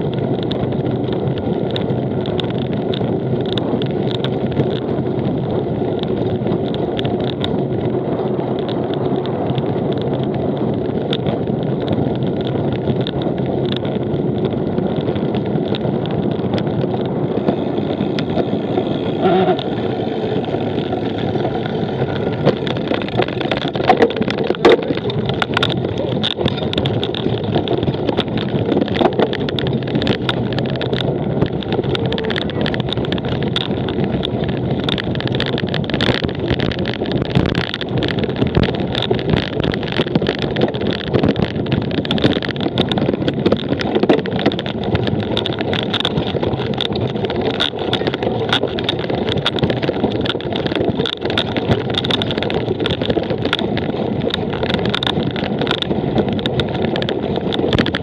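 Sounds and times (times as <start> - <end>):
bike rattling: 0.0 - 58.0
wind and tyre noise: 0.0 - 58.0.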